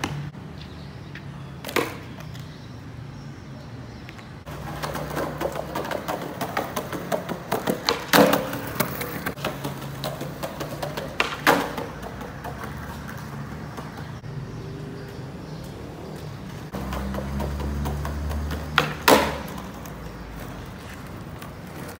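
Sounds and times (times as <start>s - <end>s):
skateboard wheels rolling on concrete: 0.0s - 21.9s
skateboard cracking on pavement: 4.5s - 14.2s, 16.5s - 21.9s.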